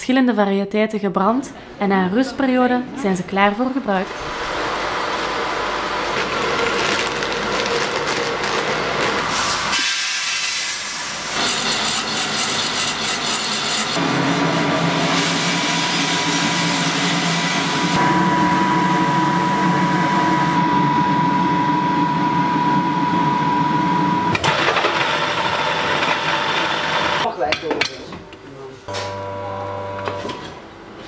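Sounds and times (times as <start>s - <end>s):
coffee roaster mechanical hum: 4.0s - 27.3s, 28.9s - 31.0s
coffee beans tumbling and scraping: 6.1s - 9.4s
thin steady whine: 17.7s - 24.4s.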